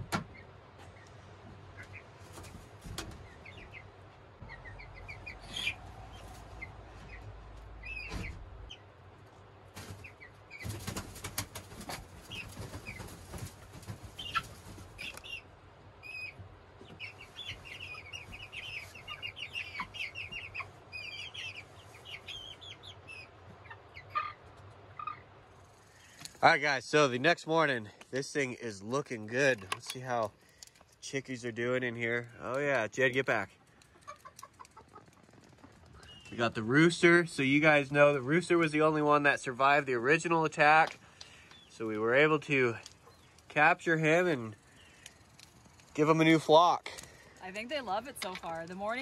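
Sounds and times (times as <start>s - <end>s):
chicks peeping: 0.0s - 26.4s, 29.4s - 47.5s
wings flapping in sawdust: 9.7s - 15.4s.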